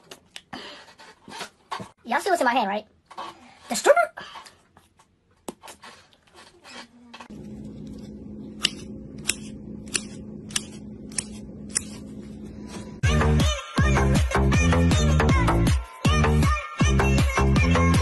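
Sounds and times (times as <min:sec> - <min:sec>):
steady low hum: 0:07.2 - 0:13.0.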